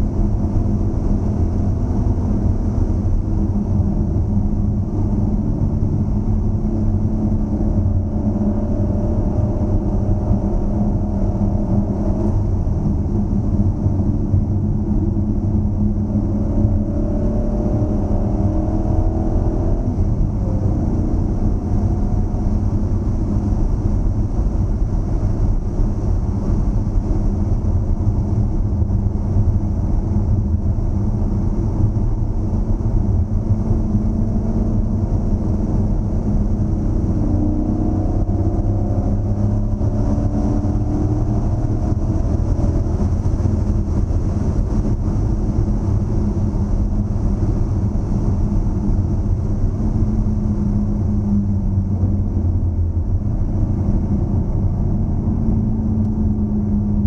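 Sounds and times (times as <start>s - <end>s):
car engine running: 0.0s - 57.0s
road noise: 0.0s - 57.0s.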